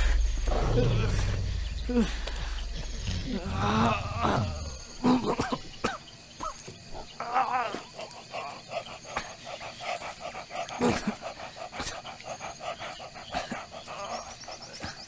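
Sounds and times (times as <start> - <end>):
ragged breathing: 0.0 - 4.0
man groaning in pain: 3.2 - 4.7.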